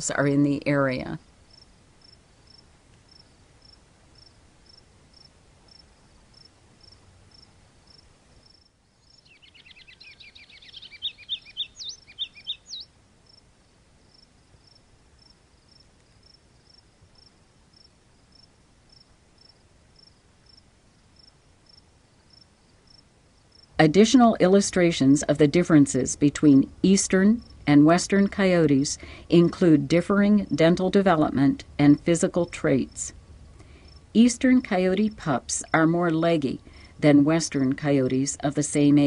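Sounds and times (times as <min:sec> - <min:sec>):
cricket chirping: 0:01.5 - 0:23.8, 0:33.8 - 0:34.1.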